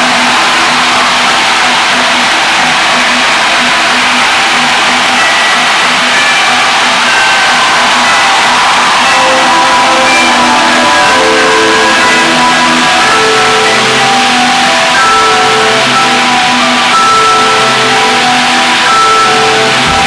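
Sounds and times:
electric violin melody: 5.1s - 20.0s
live rock orchestra music: 7.5s - 20.0s.

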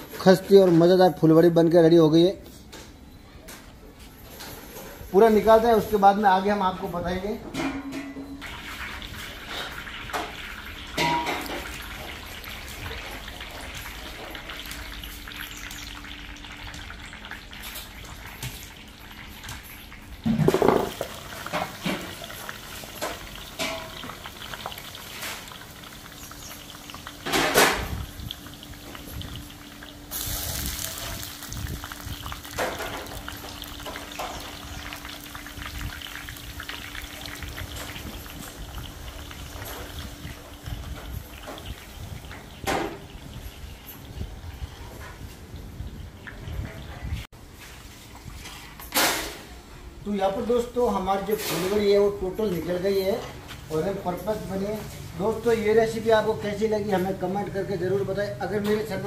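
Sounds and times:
hot oil sizzling and bubbling: 8.4s - 59.0s
metal ladle clanking on pan: 11.0s - 11.8s, 23.0s - 24.2s.

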